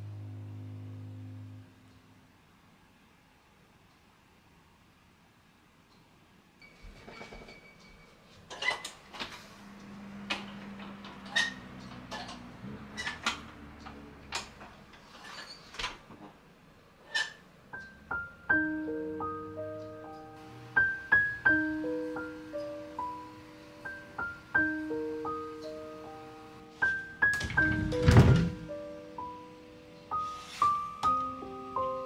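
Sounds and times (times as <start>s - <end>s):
slow piano melody: 0.0s - 2.2s, 17.7s - 32.0s.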